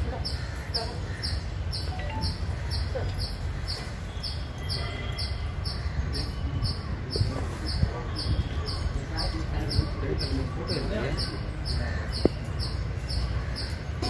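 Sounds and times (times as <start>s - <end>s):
faint voices: 5.5s - 14.0s.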